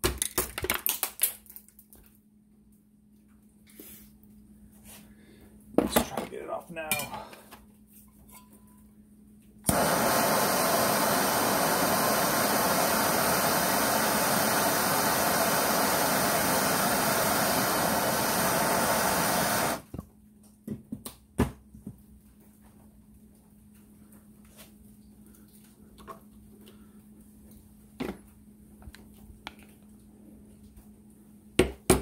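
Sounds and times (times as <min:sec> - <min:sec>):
gas torch hissing: 0:09.7 - 0:19.9.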